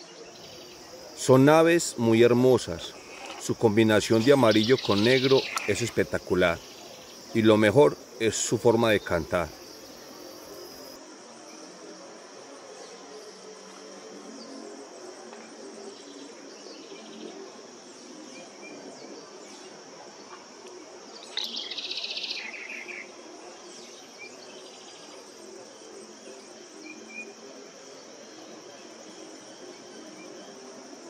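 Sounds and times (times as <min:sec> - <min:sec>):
high-pitched insect chorus: 0:00.1 - 0:20.2, 0:21.0 - 0:31.0.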